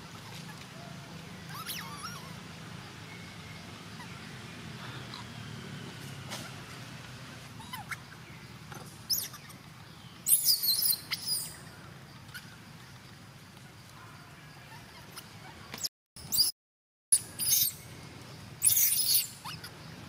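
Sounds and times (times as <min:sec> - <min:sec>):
baby monkey squealing: 0:01.5 - 0:02.4, 0:07.6 - 0:08.1, 0:08.7 - 0:09.6, 0:10.3 - 0:11.6, 0:17.2 - 0:17.8, 0:18.6 - 0:19.7.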